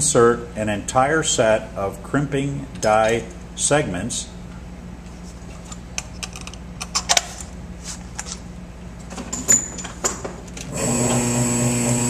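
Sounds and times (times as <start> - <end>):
metal tools clicking and clinking: 9.3 - 10.6
hydraulic pump motor humming: 10.6 - 12.0.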